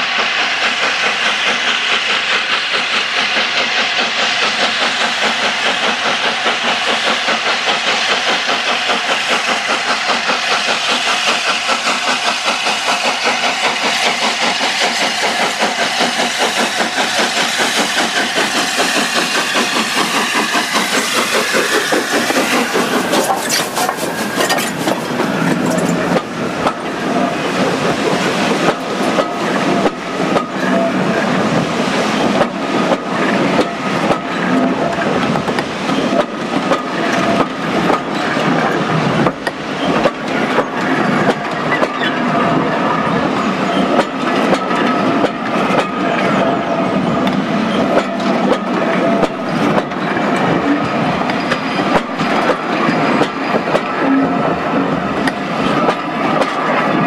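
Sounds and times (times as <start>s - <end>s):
steam locomotive exhaust beats: 0.0s - 57.0s
train wheels clacking on rail joints: 0.0s - 57.0s.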